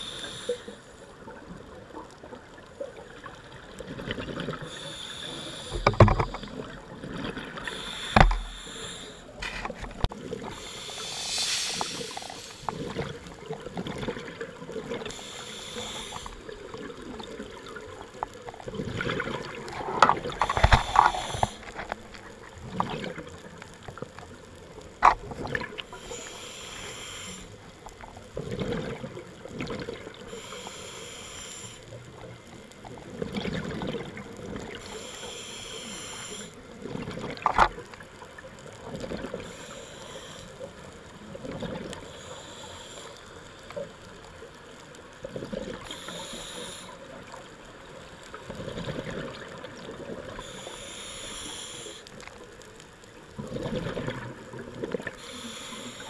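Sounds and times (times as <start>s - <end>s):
regulator inhalations: 0.0s - 0.8s, 4.7s - 6.4s, 7.6s - 9.7s, 10.5s - 13.0s, 15.1s - 16.5s, 20.3s - 21.9s, 25.9s - 27.6s, 30.3s - 31.9s, 34.8s - 36.6s, 39.4s - 40.7s, 42.0s - 43.4s, 45.9s - 47.1s, 50.4s - 52.2s, 55.2s - 56.0s
exhaled bubbles underwater: 0.0s - 23.5s, 25.2s - 26.1s, 28.0s - 30.3s, 32.1s - 35.0s, 36.7s - 39.6s, 47.1s - 50.5s, 53.2s - 56.0s.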